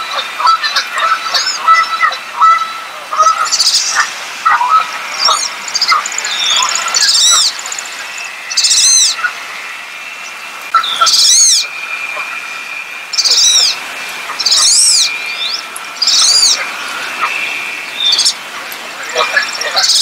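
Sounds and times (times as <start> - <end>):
wood duck squealing calls: 0.0 - 9.4, 10.7 - 18.4, 19.0 - 20.0
low chirps: 0.0 - 20.0.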